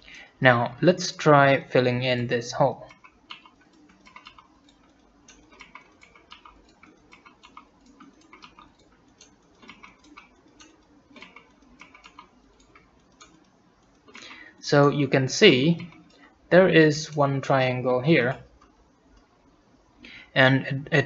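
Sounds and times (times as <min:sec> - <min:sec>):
computer mouse and keyboard clicking: 0:02.8 - 0:16.3, 0:18.3 - 0:19.3.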